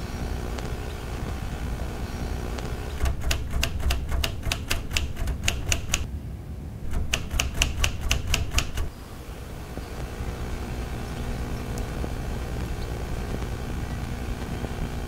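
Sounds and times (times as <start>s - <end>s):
typewriter keys clacking: 3.0s - 6.1s, 6.9s - 8.9s.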